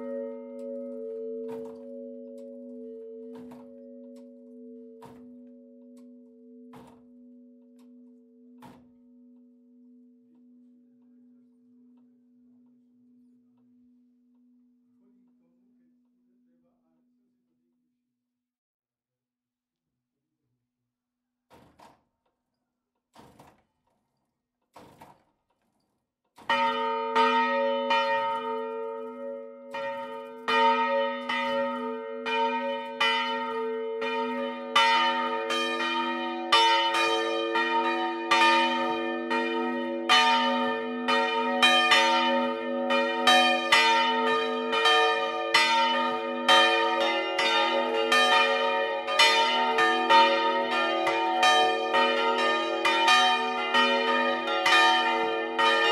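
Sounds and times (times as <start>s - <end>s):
church bells pealing: 0.0s - 10.0s, 26.5s - 55.9s.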